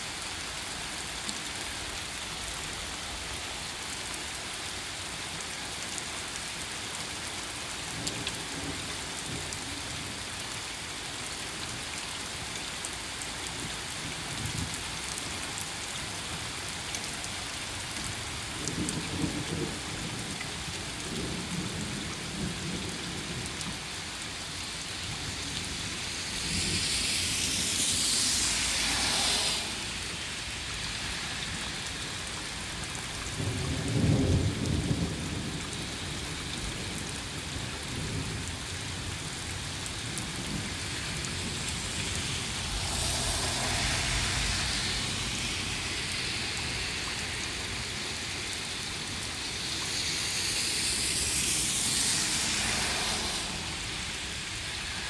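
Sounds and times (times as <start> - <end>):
car tyres hissing on wet road: 0.0 - 55.0
rain on pavement: 0.0 - 55.0
vehicle approaching: 26.2 - 30.8, 41.3 - 48.3, 50.7 - 54.7
thunder rumbling: 38.0 - 48.3.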